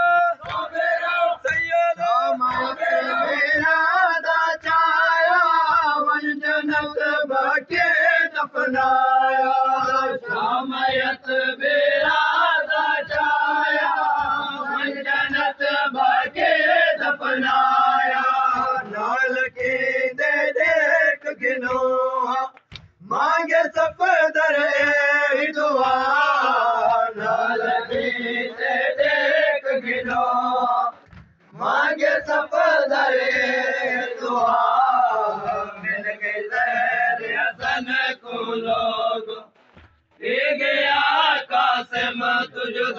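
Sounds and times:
chest-beating slaps: 0.0 - 5.9, 21.6 - 23.1, 27.2 - 36.2, 39.4 - 41.2
men chanting a lament: 0.0 - 39.5, 40.2 - 42.9.

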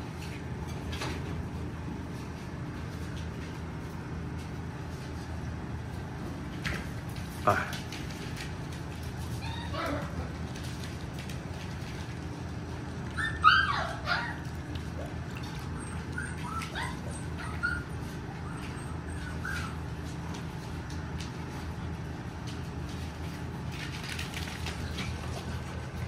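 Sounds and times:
low steady hum: 0.0 - 26.0
puppies yelping and whimpering: 9.3 - 10.4, 13.1 - 20.2.

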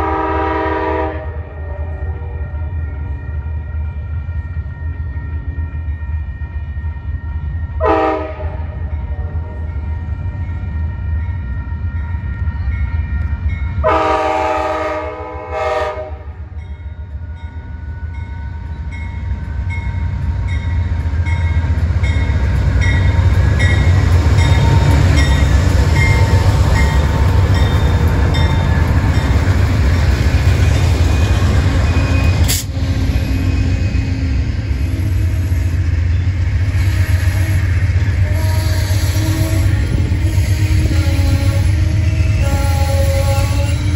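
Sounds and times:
locomotive air horn: 0.0 - 3.2, 7.8 - 9.6, 13.8 - 16.4, 36.7 - 43.9
diesel locomotive rumble: 0.0 - 43.9.

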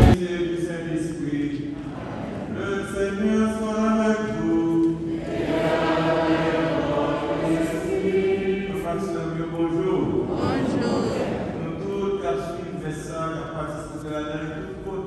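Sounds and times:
congregation singing a chant: 1.6 - 13.6.

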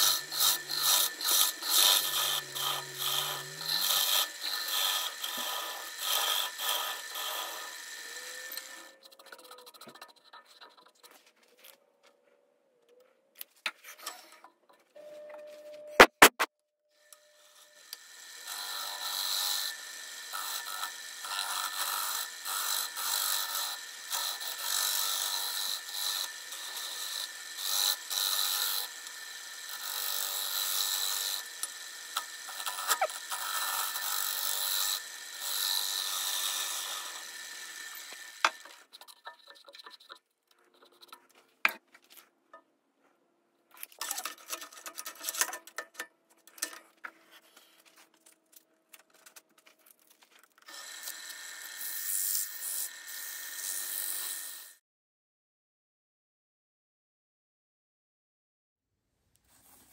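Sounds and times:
wood lathe rasping: 0.0 - 10.9, 17.5 - 40.2.

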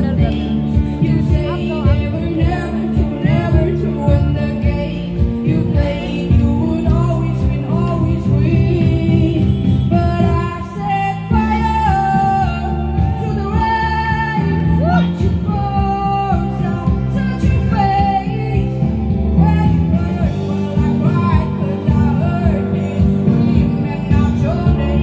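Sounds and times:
bass line: 0.0 - 25.0
person singing with vibrato: 0.0 - 25.0.

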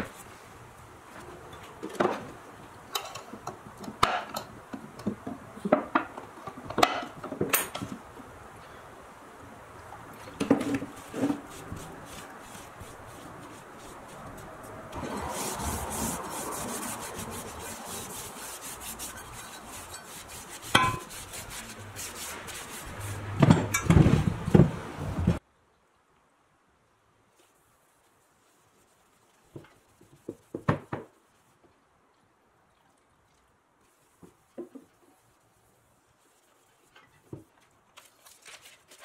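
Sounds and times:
rag rubbing metal: 11.0 - 23.8.

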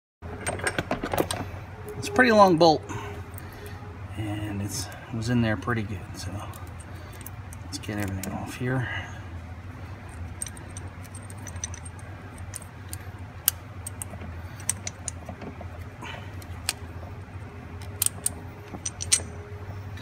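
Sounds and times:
low steady hum: 0.2 - 20.0
metallic clicks and jingles: 10.0 - 15.5, 17.8 - 19.4.

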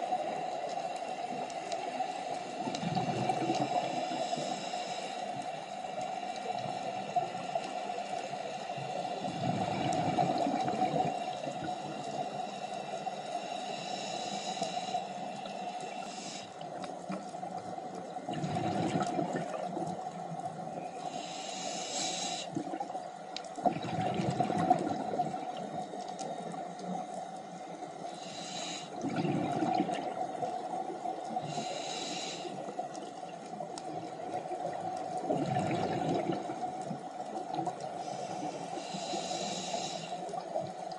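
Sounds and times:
underwater hum: 0.0 - 40.9
diver inhaling through regulator: 2.2 - 16.6, 21.0 - 22.6, 28.0 - 29.6, 31.4 - 32.8, 37.9 - 40.4
bubbling exhale bursts: 18.3 - 19.6, 23.6 - 25.4, 28.2 - 30.2, 35.3 - 36.6.

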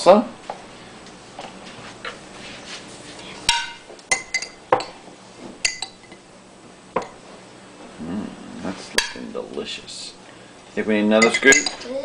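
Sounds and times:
spoon clinking against glass jar: 11.2 - 11.8.

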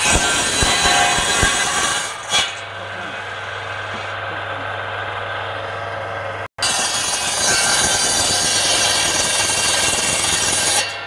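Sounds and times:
saw blade cutting wood: 0.0 - 4.2, 6.6 - 11.0.

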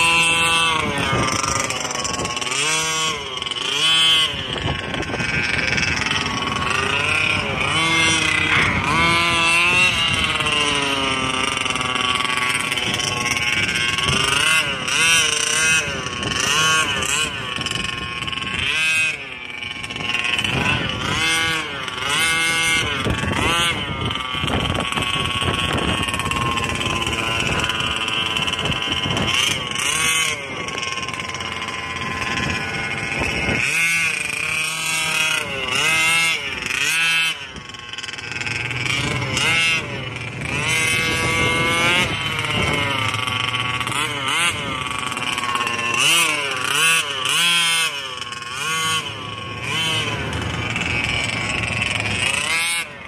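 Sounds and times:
two-stroke engine revving: 0.0 - 53.0.

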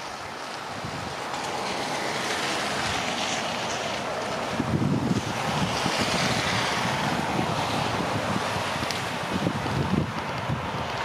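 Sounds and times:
wind blowing: 0.0 - 11.0
wind buffeting microphone: 0.0 - 11.0.

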